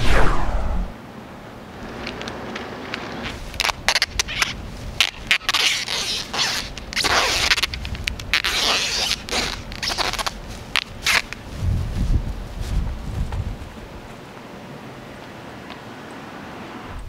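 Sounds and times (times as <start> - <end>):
tape ripping off roll: 1.9 - 11.4.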